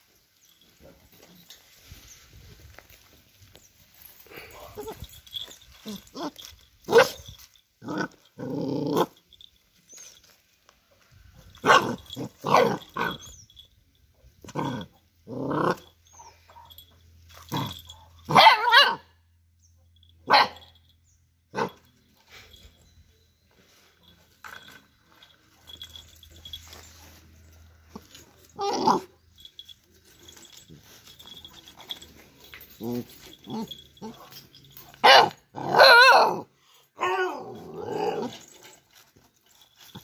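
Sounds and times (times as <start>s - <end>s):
puppy barking and growling: 4.6s - 9.3s, 11.5s - 13.6s, 14.4s - 16.8s, 17.4s - 19.1s, 20.2s - 20.8s, 21.5s - 21.9s, 27.9s - 38.8s.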